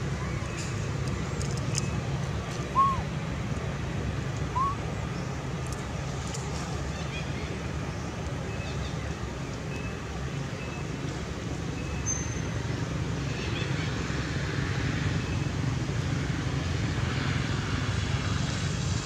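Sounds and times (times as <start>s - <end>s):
high rising and falling calls: 2.7s - 3.1s, 4.5s - 4.8s.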